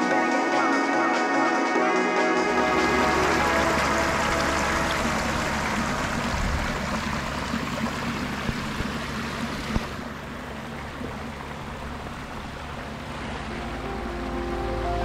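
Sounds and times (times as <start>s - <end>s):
water rushing over boulders: 2.6s - 14.1s.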